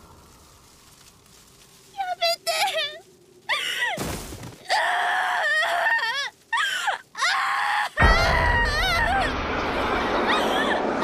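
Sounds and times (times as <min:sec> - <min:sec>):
girl crying and wailing: 0:04.6 - 0:09.3
loud rushing noise: 0:08.8 - 0:11.0.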